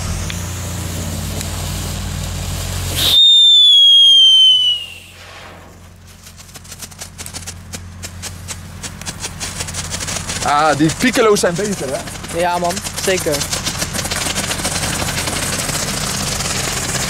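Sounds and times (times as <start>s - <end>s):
firework fountain hissing: 0.0s - 17.0s
firework whistle falling in pitch: 2.9s - 5.8s.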